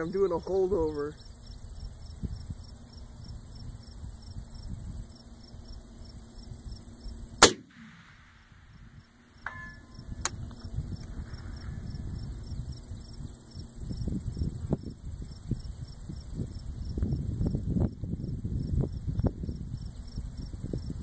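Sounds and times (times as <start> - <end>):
crickets chirping: 0.0 - 21.0
rifle shot: 7.4 - 10.4
bullet ringing on steel target: 9.4 - 10.3.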